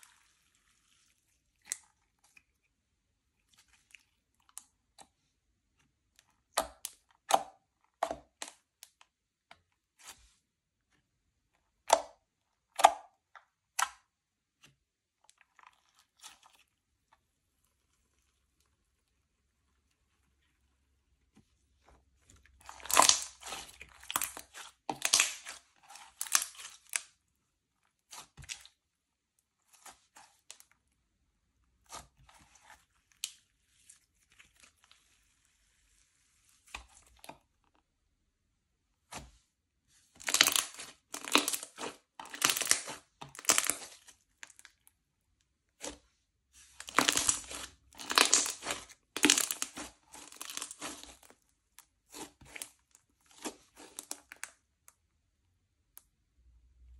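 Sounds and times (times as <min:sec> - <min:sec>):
slime squished by hand crackling: 0:22.6 - 0:27.1, 0:40.2 - 0:44.6, 0:46.8 - 0:51.4.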